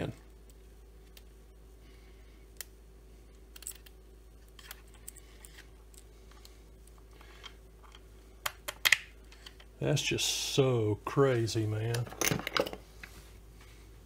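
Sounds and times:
steady low hum: 0.0 - 14.0
small clicks and scrapes: 3.5 - 8.1.

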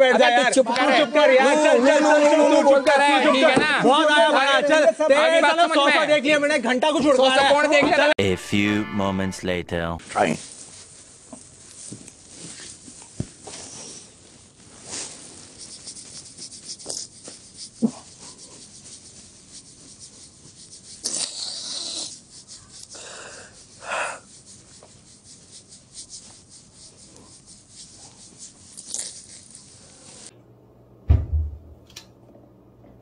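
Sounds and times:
sniffs and shaky breaths: 21.0 - 27.4.

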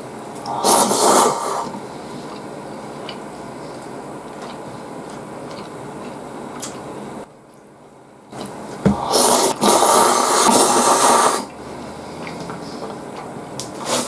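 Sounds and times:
person slurping noodles: 0.5 - 1.8, 8.9 - 13.0, 13.8 - 14.0.

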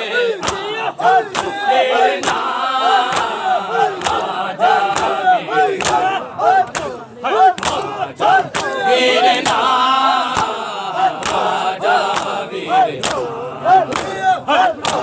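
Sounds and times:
men chanting in unison: 0.0 - 15.0
hands slapping chests: 0.4 - 0.7, 2.2 - 4.3, 5.8 - 6.1, 7.6 - 8.8, 10.3 - 12.4.

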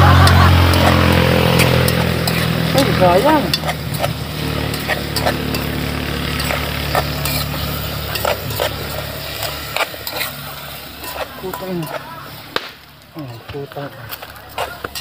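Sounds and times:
low drone: 0.0 - 11.5
food stirred in metal pot: 0.0 - 15.0.

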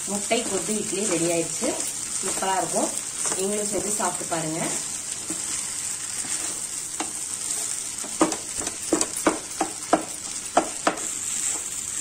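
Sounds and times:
light sizzle from pan: 0.0 - 12.0
metal spatula knocking on pan: 8.1 - 11.1.

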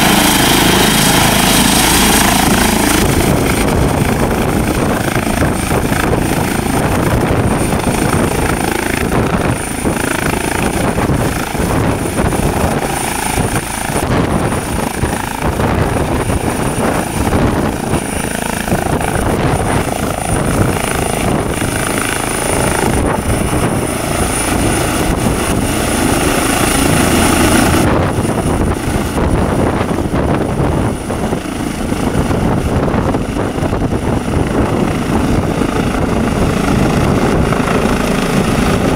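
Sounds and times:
helicopter rotor noise: 0.0 - 38.9
high-pitched turbine whine: 0.0 - 38.9.

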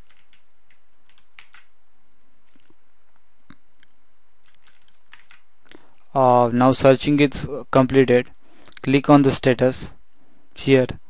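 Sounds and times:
computer keyboard and mouse clicks: 0.0 - 1.7, 3.5 - 5.4
steady background hiss: 0.0 - 11.0.

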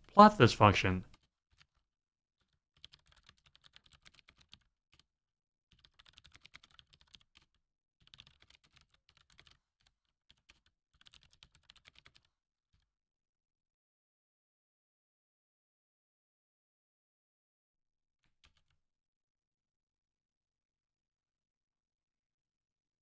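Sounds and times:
faint keyboard typing: 2.4 - 5.1, 5.7 - 12.9, 18.3 - 18.8.

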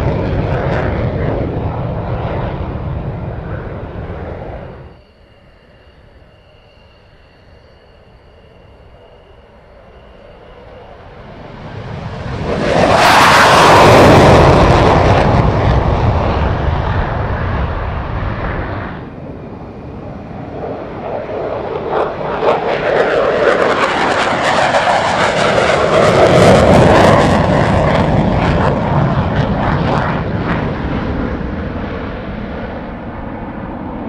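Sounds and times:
fighter jet engine passing: 0.0 - 34.0
jet afterburner crackle: 11.6 - 19.1.

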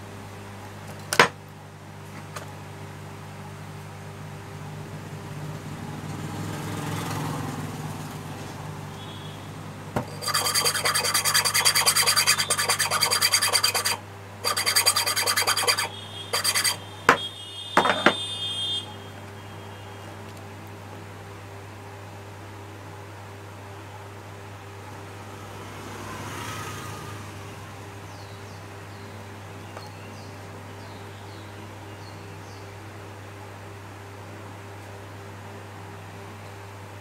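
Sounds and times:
steady low hum: 8.0 - 25.7
loud rasping rub: 10.0 - 16.8.

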